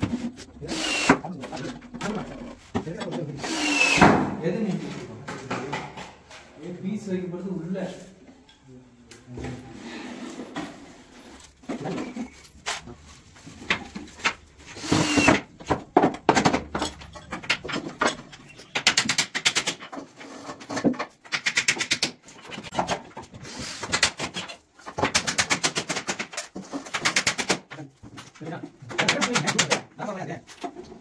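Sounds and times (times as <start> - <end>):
knocks and handling sounds: 0.0 - 3.4, 10.3 - 21.5.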